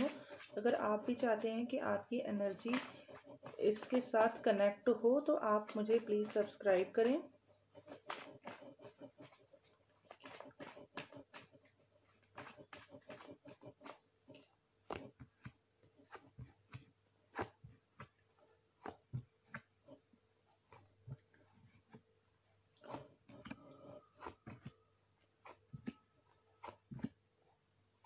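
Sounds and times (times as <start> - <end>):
cards shuffled by hand: 7.8 - 14.0.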